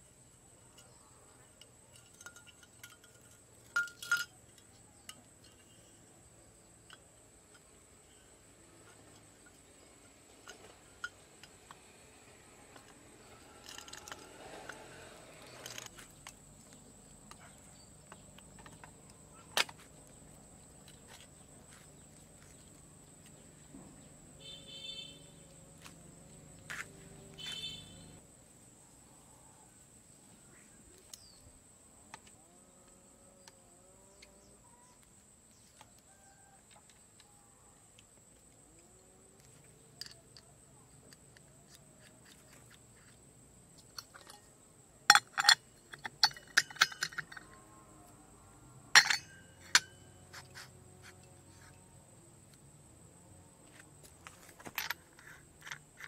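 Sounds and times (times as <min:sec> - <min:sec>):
metal parts clinking and tapping: 0:00.6 - 0:11.9, 0:12.6 - 0:28.2, 0:39.4 - 0:47.8, 0:48.9 - 0:51.8, 0:53.7 - 0:56.0.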